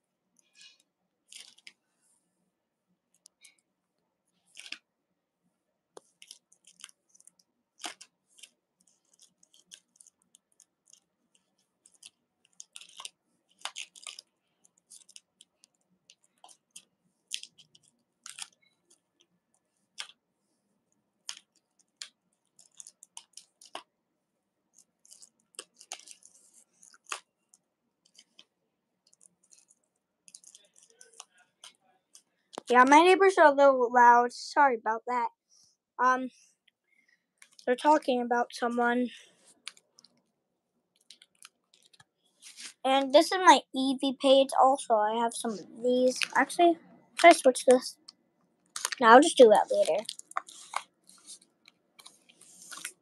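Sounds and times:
plastic pages crinkling: 0.5s - 1.8s, 4.5s - 4.8s, 6.0s - 19.3s, 19.9s - 20.2s, 21.2s - 23.9s, 24.7s - 32.8s, 37.4s - 37.8s, 41.0s - 43.2s, 45.4s - 46.6s, 48.7s - 53.0s
binder pages clicking: 6.2s - 11.0s, 11.8s - 19.0s, 20.0s - 20.2s, 21.3s - 23.9s, 24.8s - 27.3s, 29.1s - 32.7s.

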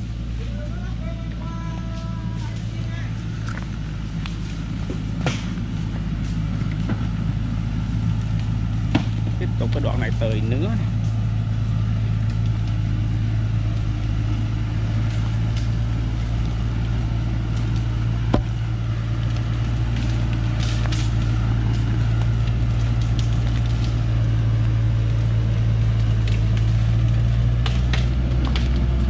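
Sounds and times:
truck diesel engine running: 0.0s - 29.0s
sharp crack: 3.4s - 7.1s, 15.0s - 29.0s.

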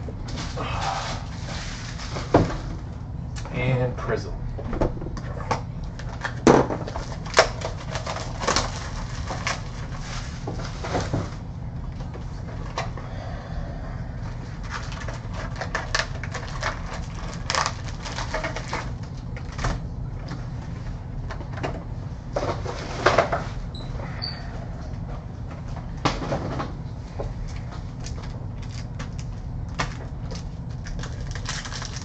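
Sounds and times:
steady low hum: 0.0s - 32.0s
cards and box handling rustles: 6.0s - 11.4s, 14.6s - 19.6s, 27.5s - 32.0s.

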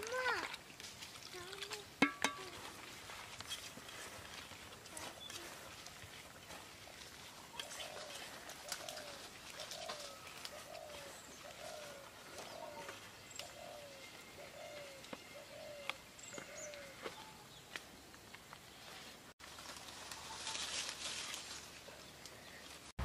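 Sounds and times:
hands mixing in metal pot: 0.0s - 3.0s.

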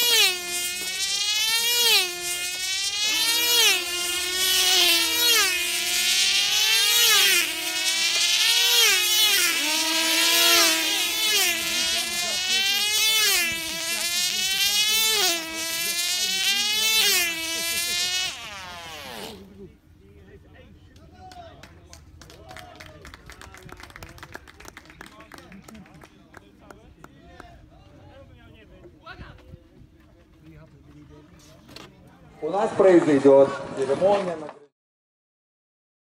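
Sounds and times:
model engine buzzing whine: 0.0s - 19.8s.

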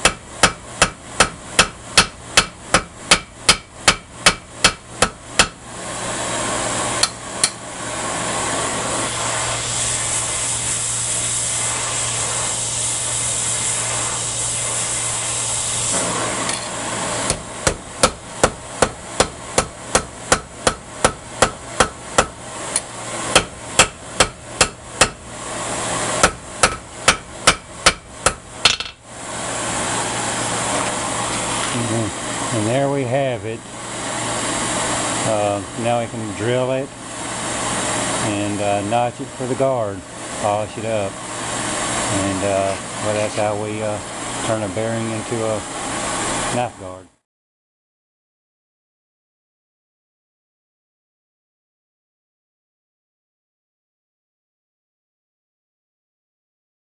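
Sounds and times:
hammer blows ringing on anvil: 0.0s - 5.6s, 26.2s - 28.9s.

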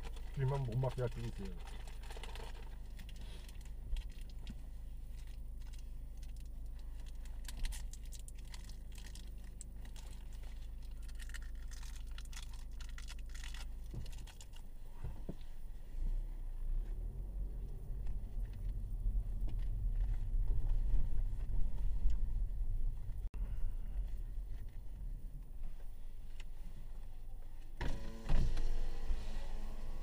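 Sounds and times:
rustling and clicking handling: 0.0s - 15.6s
car engine idling: 0.0s - 30.0s.

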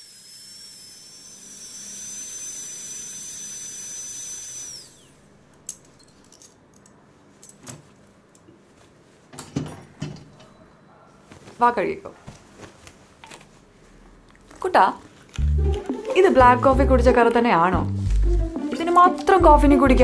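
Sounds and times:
dental drill whining: 0.0s - 5.2s.

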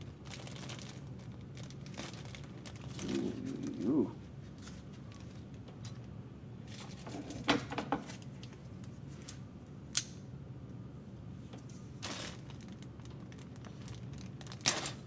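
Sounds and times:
plastic bag crinkling: 0.0s - 3.7s, 12.0s - 15.0s
steady low hum: 0.0s - 7.5s.

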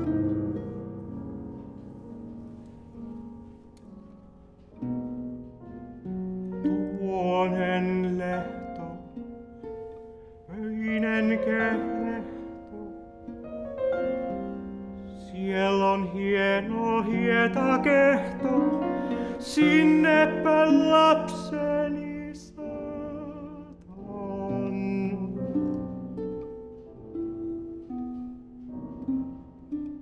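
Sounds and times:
digital piano: 0.0s - 30.0s
man singing with vibrato: 6.8s - 9.3s, 10.5s - 13.0s, 15.1s - 25.8s.

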